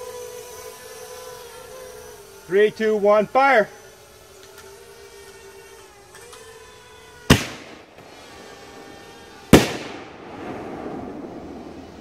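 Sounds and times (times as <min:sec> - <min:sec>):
drone hovering hum: 0:00.0 - 0:12.0
shell bursting overhead: 0:07.3 - 0:08.2, 0:09.5 - 0:12.0.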